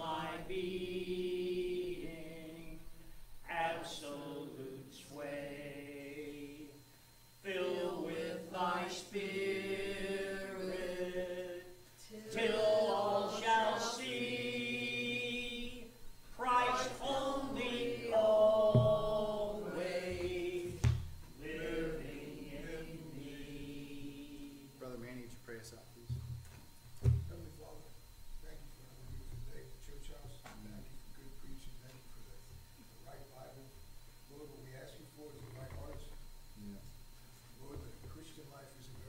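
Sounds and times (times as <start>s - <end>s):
congregation singing a hymn: 0.0s - 24.9s.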